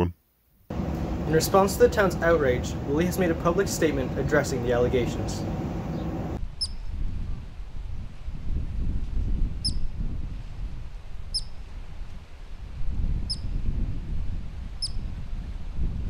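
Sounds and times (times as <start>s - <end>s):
low steady rumble: 0.7s - 16.0s
ground squirrel high chirps: 6.6s - 6.8s, 9.6s - 9.9s, 11.3s - 11.6s, 13.3s - 13.5s, 14.8s - 15.0s.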